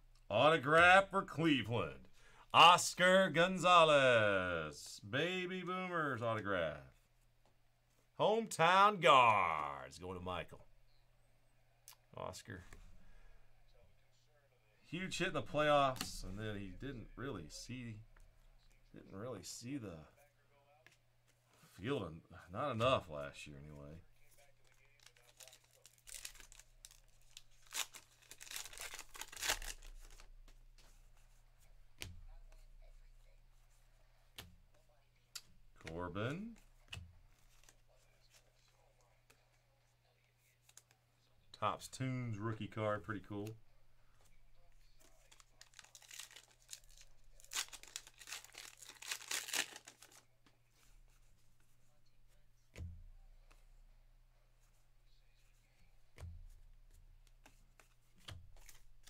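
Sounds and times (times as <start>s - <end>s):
plastic wrapper tearing and crinkling: 24.6s - 30.3s, 45.0s - 50.3s.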